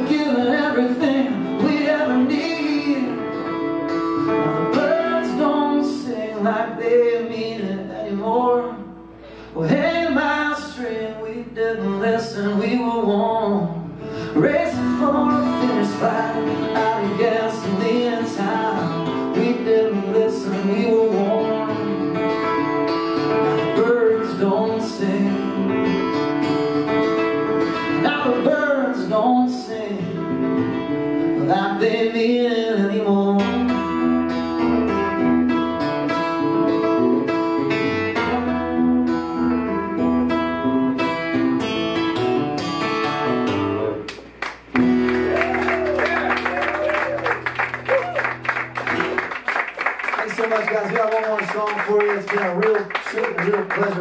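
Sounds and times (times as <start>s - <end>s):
man singing: 0.0s - 26.2s, 27.8s - 34.1s
acoustic guitar strummed: 0.0s - 49.9s.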